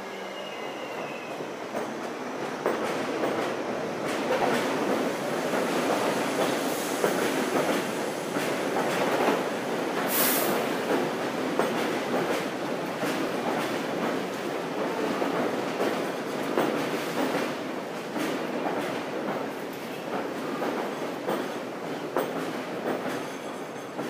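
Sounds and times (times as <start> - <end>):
subway train pulling out: 0.0 - 24.0
train wheels clacking: 1.7 - 24.0
short high hiss: 10.1 - 10.6.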